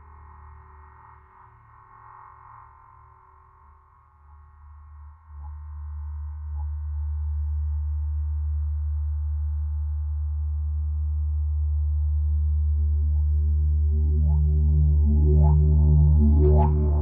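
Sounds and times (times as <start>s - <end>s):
deep electronic drone: 5.4s - 17.0s.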